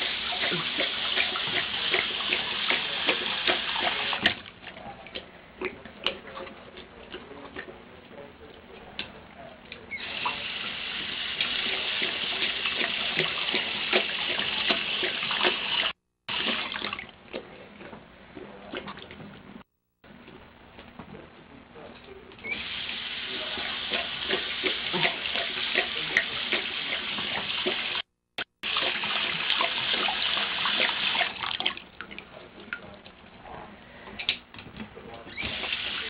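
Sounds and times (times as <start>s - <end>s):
faucet water splashing into basin: 0.0s - 4.6s, 9.9s - 17.2s, 22.4s - 32.9s, 35.3s - 36.0s
dog drinking: 0.0s - 19.4s, 22.4s - 28.0s, 28.6s - 33.3s.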